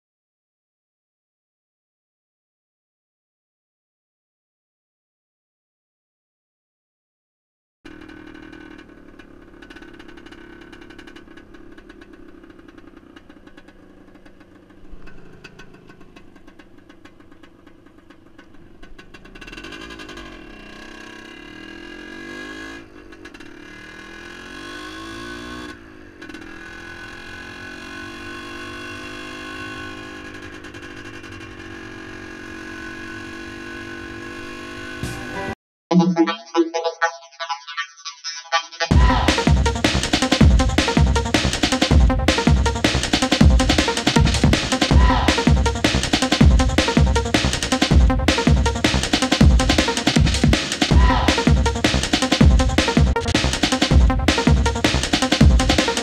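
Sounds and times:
two-stroke motorcycle engine revving: 7.9s - 35.6s, 38.9s - 56.0s.

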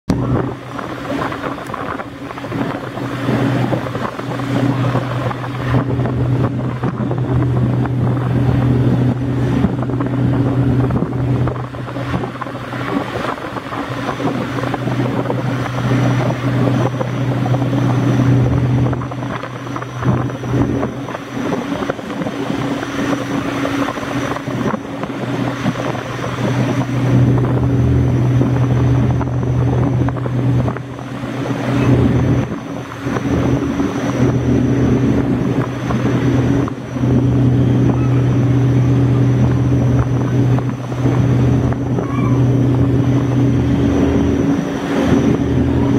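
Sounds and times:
hydrofoil catamaran engine hum: 0.0s - 45.9s.

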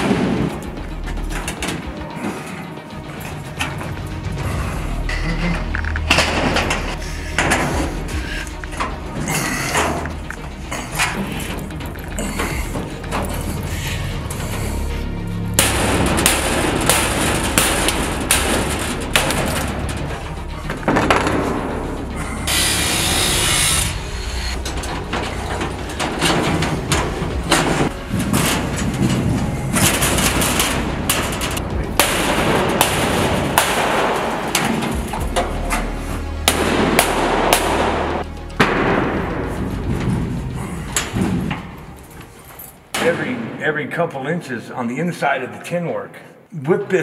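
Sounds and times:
background music: 0.0s - 47.0s
steady background noise: 0.0s - 47.0s
hammer blows on sheet steel: 15.6s - 21.8s, 29.8s - 39.5s.

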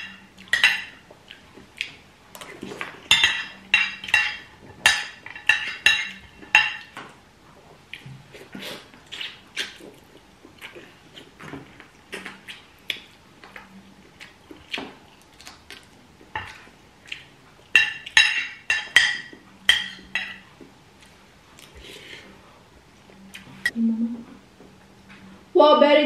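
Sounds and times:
cutlery clinking on plates: 0.0s - 1.0s, 2.7s - 7.1s, 17.8s - 20.5s.

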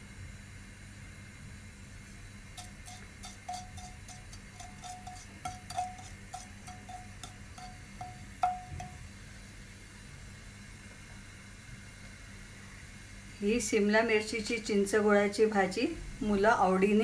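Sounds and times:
seeds crackling in hot oil: 2.0s - 9.0s.

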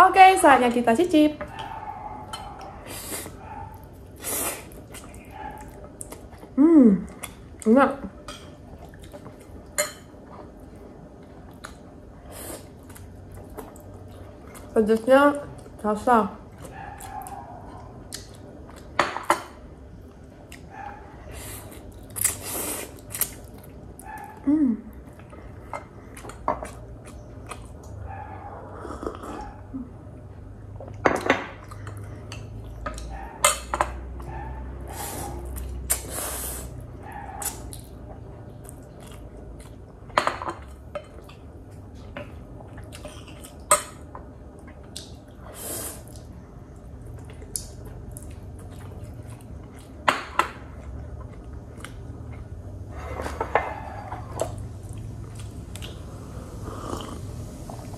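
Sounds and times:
chewing: 1.4s - 7.6s, 8.4s - 14.8s, 16.5s - 19.0s, 20.4s - 29.7s, 30.7s - 57.9s
slurping: 55.8s - 57.9s.

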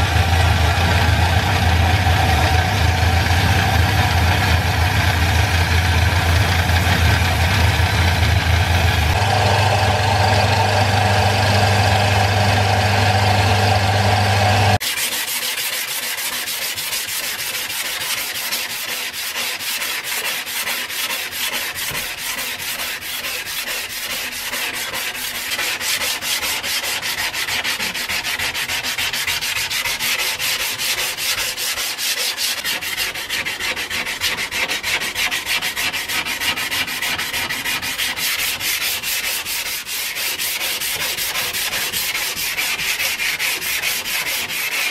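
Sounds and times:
belt sander motor humming: 0.0s - 14.8s
sanding block rasping on steel blade: 14.7s - 44.9s.

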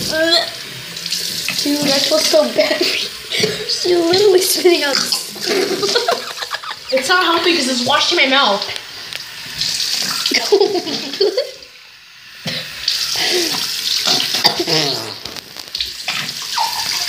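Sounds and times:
tap running into basin: 0.0s - 11.6s
boy rinsing mouth: 0.0s - 17.0s.

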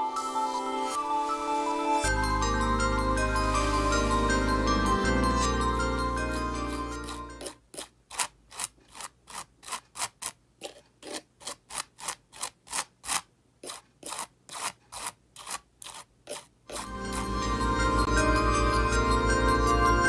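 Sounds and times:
palette knife scraping gritty gel: 7.4s - 16.9s.

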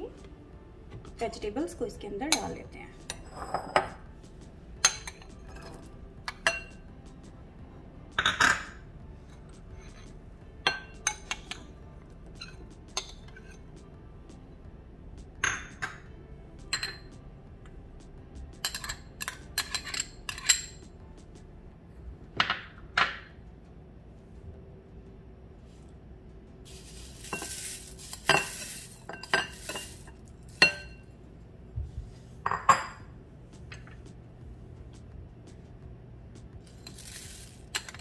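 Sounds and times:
spoon clinking against a bowl: 18.6s - 20.8s, 27.2s - 31.0s
dry rustling: 26.7s - 30.6s.

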